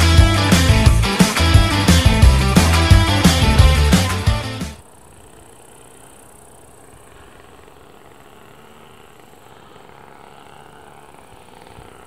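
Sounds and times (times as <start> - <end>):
rock music with electric guitar: 0.0 - 4.8.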